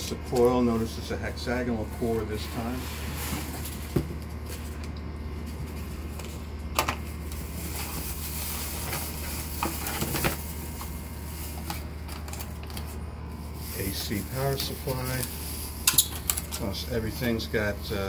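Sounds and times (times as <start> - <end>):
plastic and cardboard rustling: 7.0 - 16.7.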